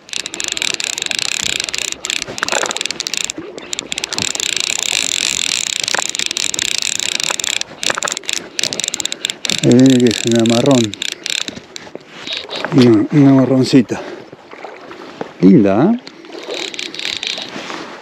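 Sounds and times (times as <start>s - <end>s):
fly reel ratchet clicking: 0.0s - 12.7s, 16.0s - 17.6s.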